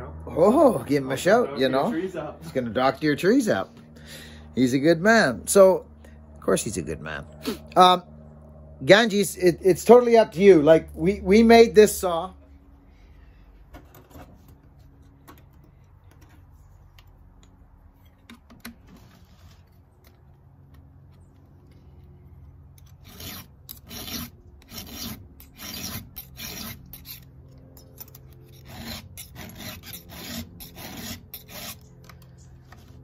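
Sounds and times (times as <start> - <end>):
file rasping on chainsaw chain: 22.8 - 32.8.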